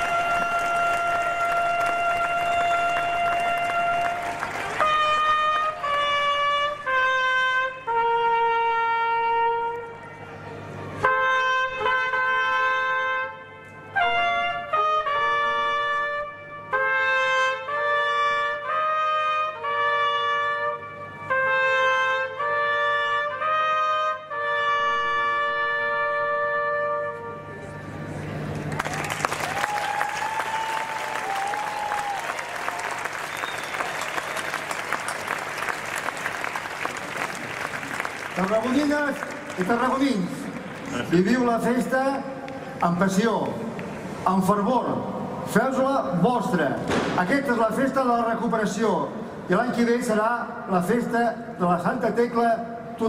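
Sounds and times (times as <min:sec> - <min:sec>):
trumpets playing a fanfare: 0:00.0 - 0:28.1.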